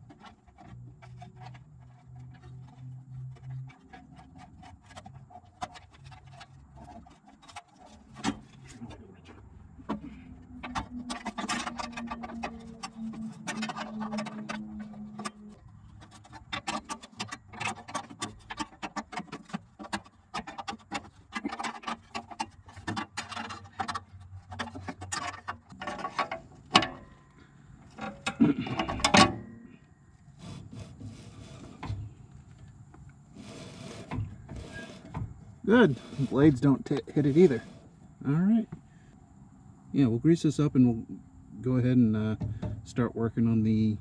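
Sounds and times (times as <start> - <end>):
metal knocks: 9.8 - 27.2, 42.4 - 43.0.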